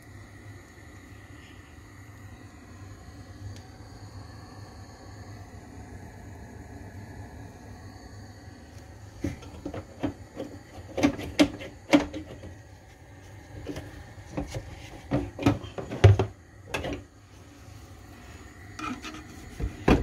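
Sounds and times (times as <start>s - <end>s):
steady low hum: 0.0s - 20.0s
kitchen knocks and clicks: 9.2s - 12.5s, 14.4s - 17.0s.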